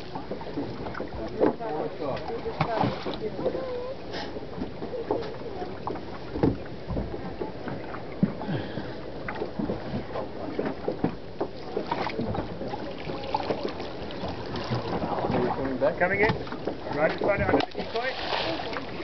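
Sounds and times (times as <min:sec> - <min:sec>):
water lapping against boat hull: 0:00.0 - 0:19.0
knocks on boat hull: 0:06.4 - 0:07.1.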